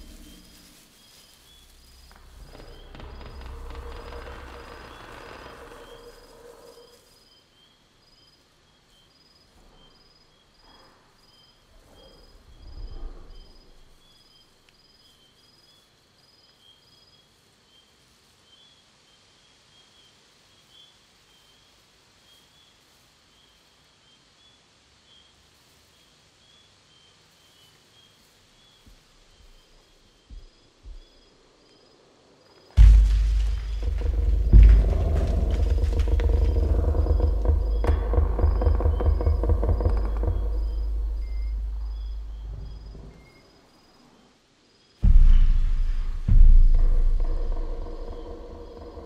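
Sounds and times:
distant low creaking groan: 0:00.0 - 0:07.1, 0:12.0 - 0:14.0, 0:32.8 - 0:43.6, 0:45.0 - 0:49.0
insects chirping: 0:00.0 - 0:49.0
soft low thumps: 0:01.5 - 0:06.4, 0:28.9 - 0:31.2, 0:32.8 - 0:43.4, 0:45.0 - 0:49.0.

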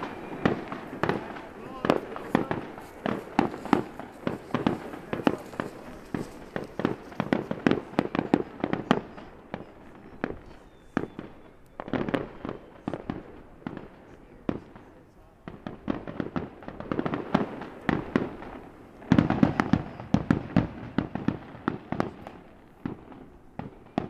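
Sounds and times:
fireworks bursting: 0:00.0 - 0:24.0.

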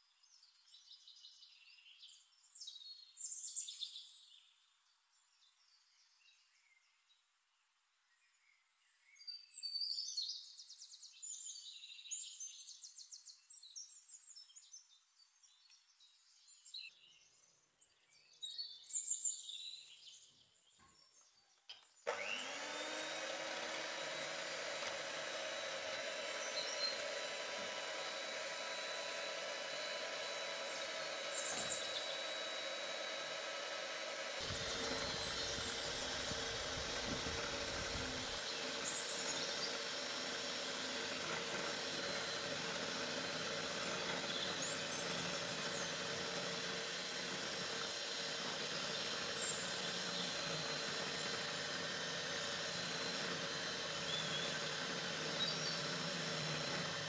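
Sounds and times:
electric hand mixer whipping: 0:22.1 - 0:57.0.

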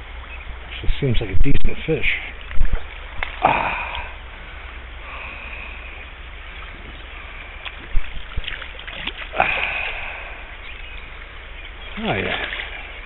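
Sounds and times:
river current rushing: 0:02.3 - 0:13.0
fish splashing at surface: 0:07.6 - 0:10.3, 0:12.0 - 0:13.0.

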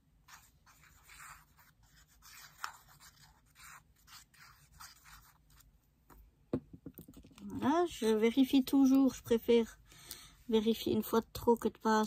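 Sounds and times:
glue bottle nib scratching paper: 0:00.3 - 0:05.6.

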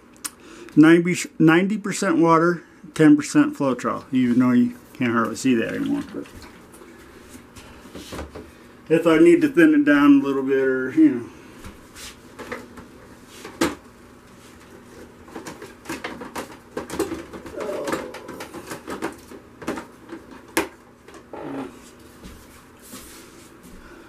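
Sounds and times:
faint short hums: 0:17.5 - 0:18.6.

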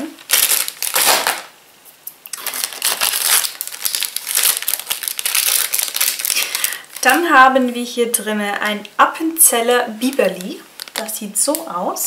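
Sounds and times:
snack packaging crinkling: 0:00.2 - 0:01.5, 0:02.3 - 0:07.4, 0:10.0 - 0:11.7.

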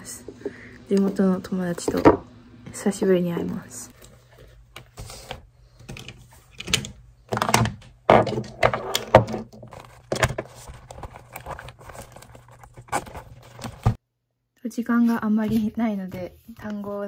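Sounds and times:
items knocking on wooden desk: 0:07.3 - 0:10.4.

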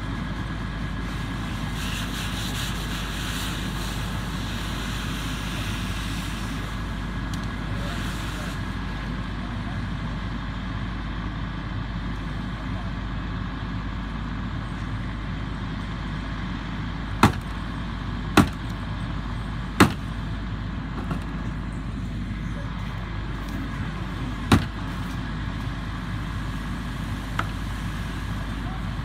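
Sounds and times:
engine idling: 0:00.0 - 0:29.0
sharp pops: 0:19.8 - 0:20.2.

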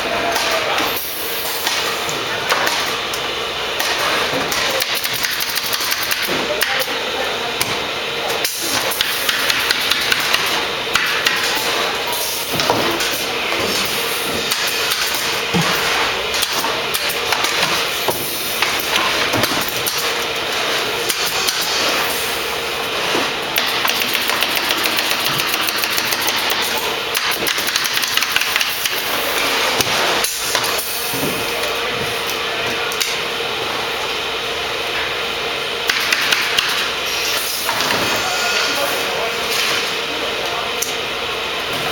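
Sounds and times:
pneumatic staple gun firing: 0:23.6 - 0:29.1.

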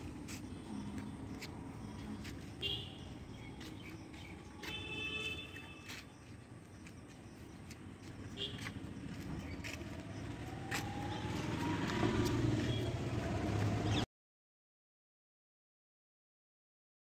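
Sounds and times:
vehicle engine approaching: 0:00.0 - 0:04.7, 0:05.9 - 0:14.1.

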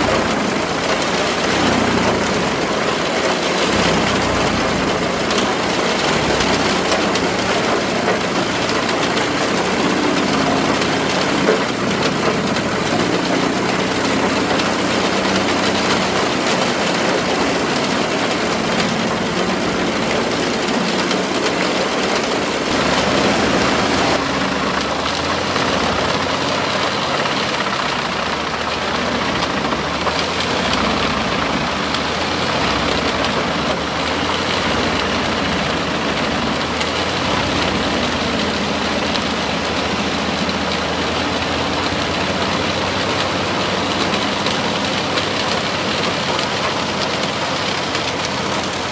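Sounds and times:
tractor engine: 0:00.0 - 0:48.9
wood chipper chipping trees: 0:00.0 - 0:48.9.

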